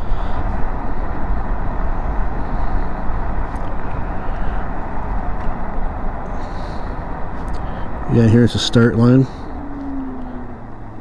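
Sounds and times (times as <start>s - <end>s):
motorbike road noise: 0.0s - 11.0s.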